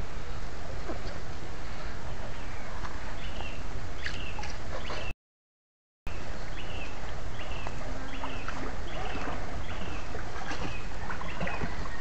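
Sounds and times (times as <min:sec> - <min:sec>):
wading in water: 0:00.0 - 0:05.1, 0:06.2 - 0:12.0
water rumbling in stream: 0:06.1 - 0:12.0.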